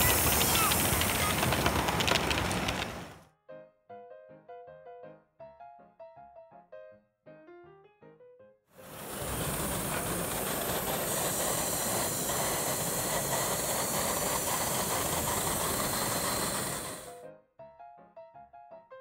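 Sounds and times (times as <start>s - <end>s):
steam hissing: 0.0s - 3.2s, 8.8s - 17.2s
piano music: 3.4s - 9.0s, 17.0s - 19.0s.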